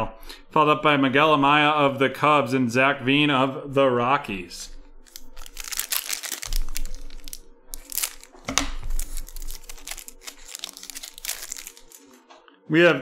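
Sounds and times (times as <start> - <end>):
foil wrapper crinkling: 5.0 - 12.2.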